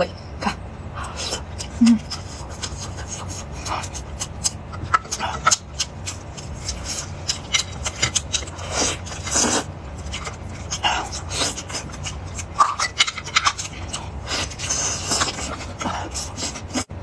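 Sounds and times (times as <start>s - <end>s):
steady low hum: 0.0s - 17.0s
eating noises: 0.6s - 17.0s.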